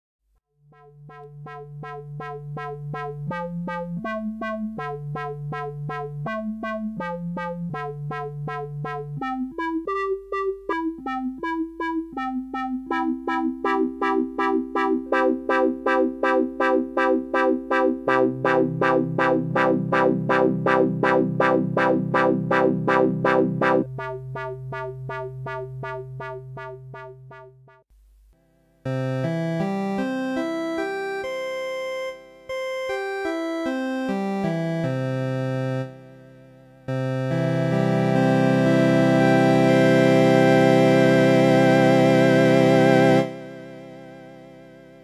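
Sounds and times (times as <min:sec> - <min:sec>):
organ with pulsing wah effect: 0:00.8 - 0:27.5.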